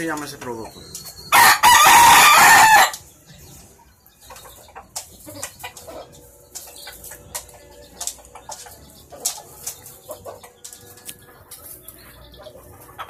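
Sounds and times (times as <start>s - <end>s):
rooster crowing: 1.3s - 3.0s.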